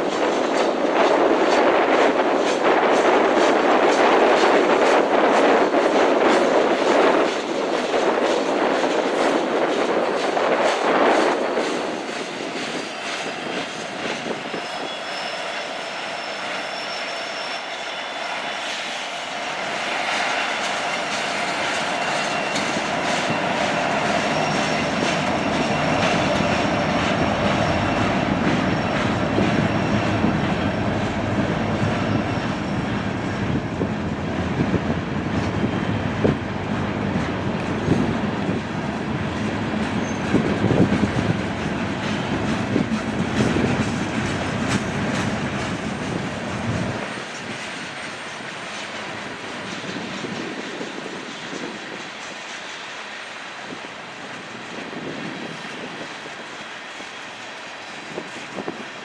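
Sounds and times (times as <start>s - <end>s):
freight train wheels clattering on rails: 0.0s - 59.0s
high wheel squeals: 11.4s - 33.6s, 39.8s - 40.8s.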